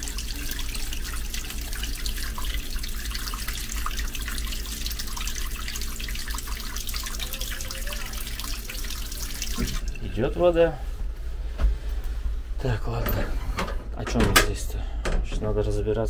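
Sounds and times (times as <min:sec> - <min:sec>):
tap water trickling: 0:00.0 - 0:10.0.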